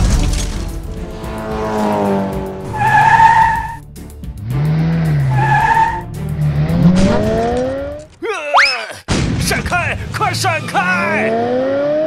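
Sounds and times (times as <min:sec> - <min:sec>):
background music: 0:00.0 - 0:08.4
tyres screeching: 0:02.6 - 0:03.8, 0:05.1 - 0:08.9.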